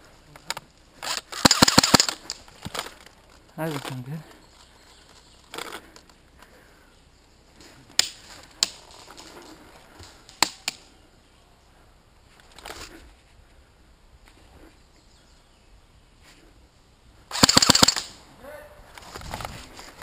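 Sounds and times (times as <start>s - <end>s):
airsoft gun cracks: 1.0s - 2.9s, 17.3s - 18.2s
soft rustle: 7.4s - 10.4s, 11.7s - 15.2s, 18.8s - 20.0s.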